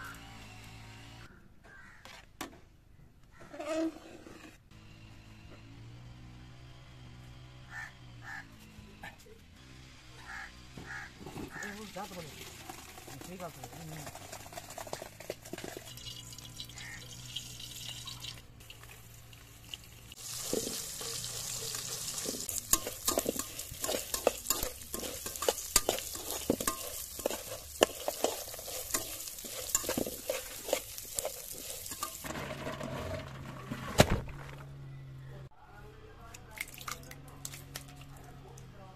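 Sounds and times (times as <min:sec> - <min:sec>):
metal spoon scraping a pan: 0:11.2 - 0:19.0, 0:20.1 - 0:33.2
seeds sizzling in hot oil: 0:11.5 - 0:32.6.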